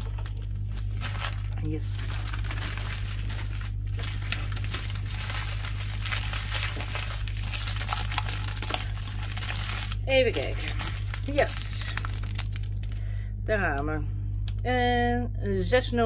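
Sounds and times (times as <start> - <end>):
plastic bags crinkling: 0.0 - 13.2
steady low hum: 0.0 - 16.0.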